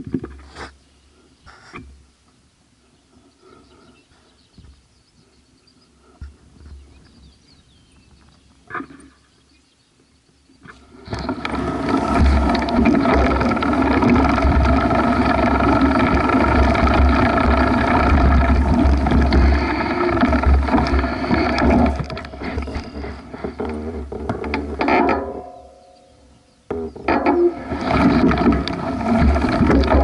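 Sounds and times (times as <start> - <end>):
wind buffeting camera: 10.6 - 24.8, 27.5 - 30.0
bike tyres rumbling on grass: 11.0 - 25.0, 27.0 - 30.0.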